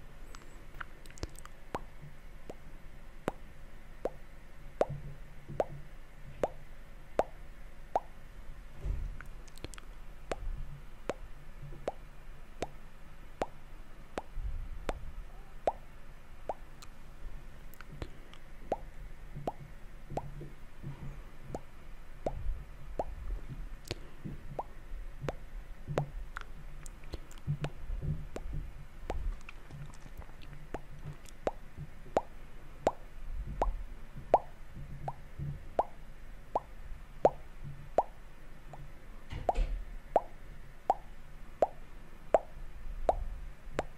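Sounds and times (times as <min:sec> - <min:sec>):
wet lip and tongue pops: 0:00.3 - 0:01.9, 0:09.2 - 0:10.5, 0:11.1 - 0:12.0, 0:17.8 - 0:20.3, 0:23.8 - 0:25.4, 0:26.0 - 0:27.8, 0:29.1 - 0:31.6.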